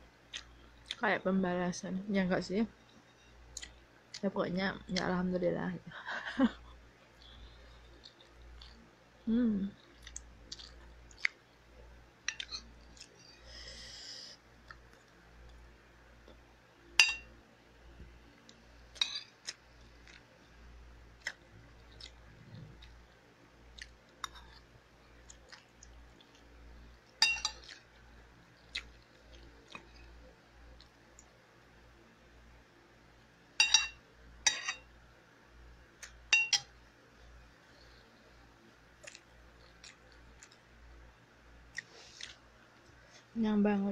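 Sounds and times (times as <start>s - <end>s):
person chewing: 7.2s - 8.9s, 9.8s - 11.4s, 12.2s - 13.2s, 18.4s - 20.3s, 21.2s - 26.5s, 27.4s - 31.3s, 39.0s - 40.7s, 41.7s - 43.0s
metal spoon clinking on a bowl: 17.0s - 17.3s, 27.2s - 27.7s, 33.6s - 34.9s, 36.3s - 36.7s.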